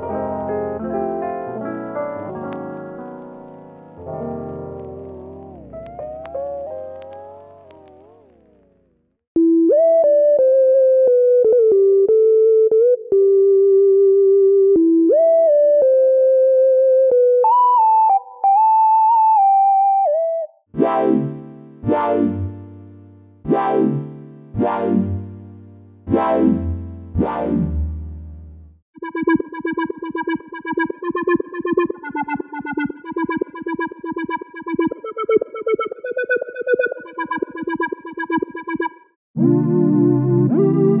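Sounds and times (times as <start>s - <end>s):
synthesizer chords: 0.0s - 13.5s, 19.5s - 41.0s
plucky synthesizer pattern: 3.4s - 8.9s, 20.8s - 22.7s, 23.5s - 25.4s, 26.1s - 28.4s, 29.0s - 39.2s.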